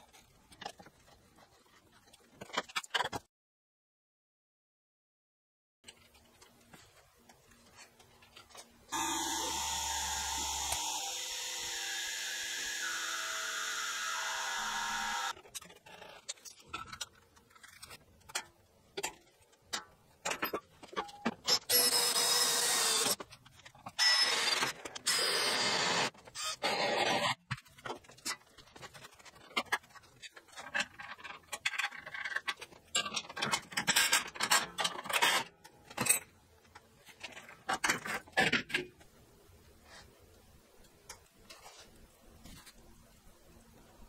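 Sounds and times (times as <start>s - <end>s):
power tool running: 8.9s - 15.3s, 21.7s - 23.2s.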